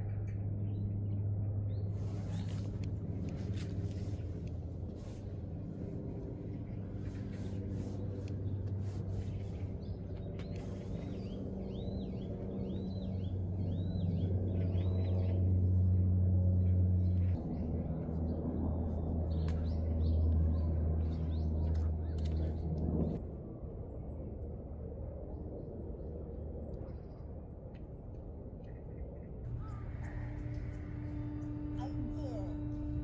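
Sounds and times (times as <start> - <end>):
low steady drone: 0.0 - 33.0.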